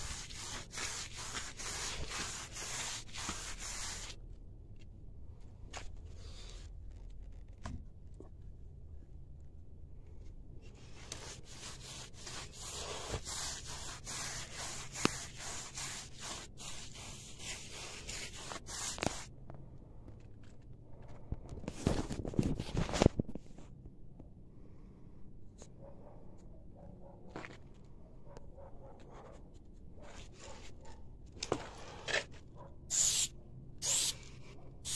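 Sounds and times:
paintbrush scrubbing on wall: 0.0 - 4.2, 10.8 - 19.3.

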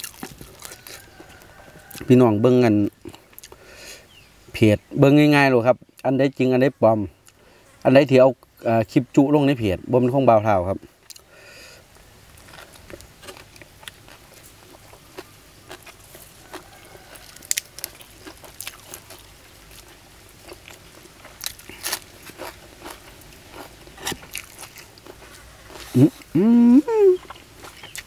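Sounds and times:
crisp chewing crunches: 0.0 - 2.2, 12.3 - 26.4, 27.1 - 28.0.

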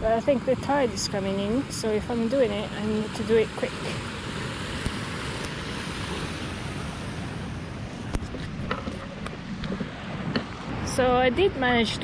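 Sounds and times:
surf waves washing onto shore: 0.0 - 11.4
wind buffeting microphone: 0.0 - 12.0
wind rushing: 3.9 - 11.4.

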